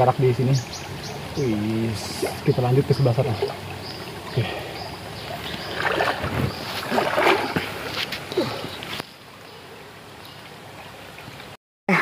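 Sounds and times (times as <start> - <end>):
water splashing from wading: 0.6 - 9.0
river rushing: 0.6 - 9.1.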